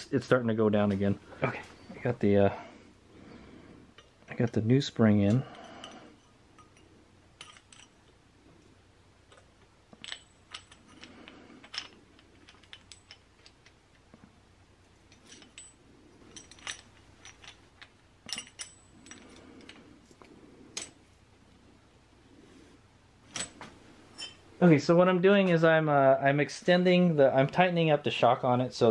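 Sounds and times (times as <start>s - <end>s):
light metallic clicks and clinks: 3.9s - 8.2s, 9.3s - 14.3s, 15.0s - 19.9s, 20.7s - 21.1s, 23.3s - 24.5s.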